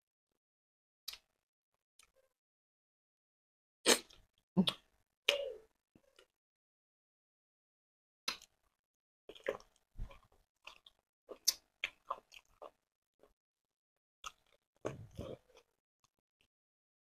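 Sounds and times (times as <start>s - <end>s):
people chewing food: 8.3s - 13.4s, 14.2s - 16.5s.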